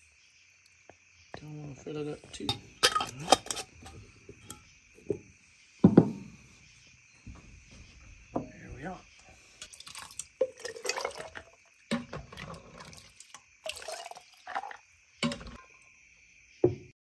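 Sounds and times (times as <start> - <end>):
hot liquid pouring into jars: 2.4 - 4.6, 8.8 - 15.9.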